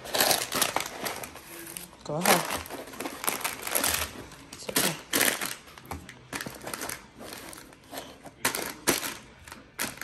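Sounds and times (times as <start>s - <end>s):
plastic containers rustling and knocking: 2.1s - 10.0s.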